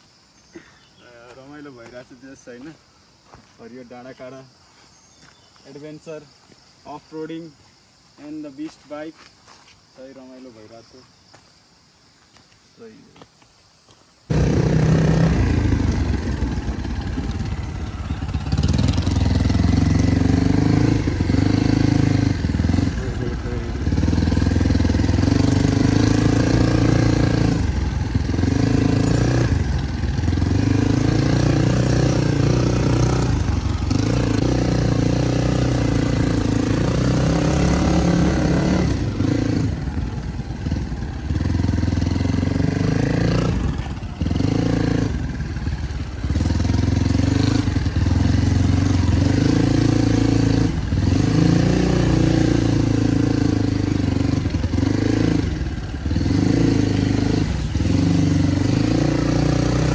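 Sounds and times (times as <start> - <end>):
motorcycle engine running: 14.3 - 59.9.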